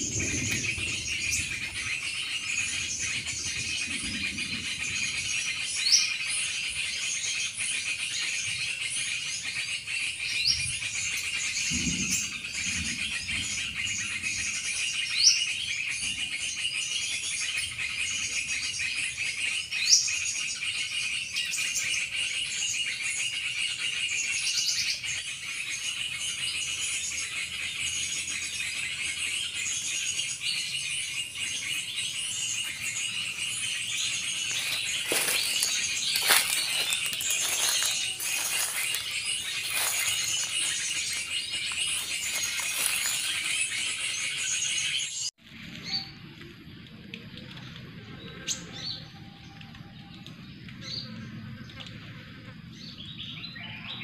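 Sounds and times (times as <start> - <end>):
insect chorus: 25.0 - 45.0.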